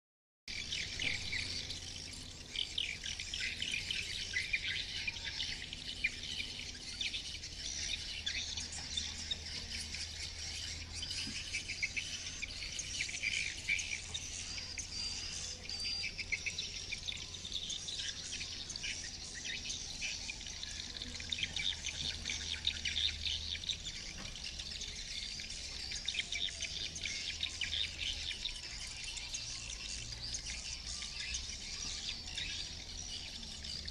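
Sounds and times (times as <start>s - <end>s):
birds twittering: 0.5s - 33.9s.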